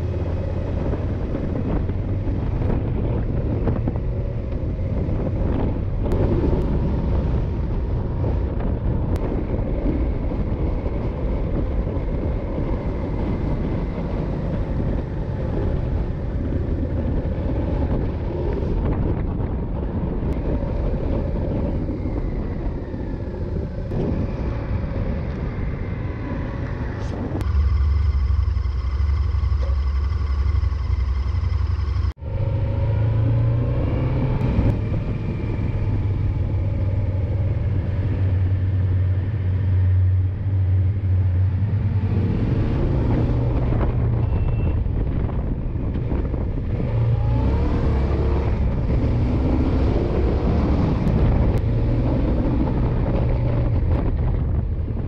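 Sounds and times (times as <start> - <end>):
wind and road noise: 0.0 - 55.0
motorcycle engine running: 27.2 - 33.6.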